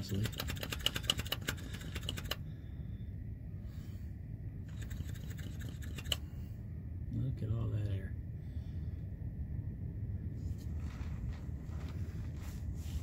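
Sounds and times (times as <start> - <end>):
fast crackling tick of brake bleeder: 0.0 - 2.4.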